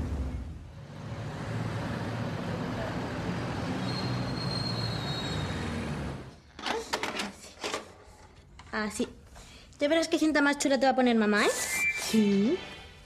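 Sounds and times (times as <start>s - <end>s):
traffic rumble: 0.0s - 6.6s.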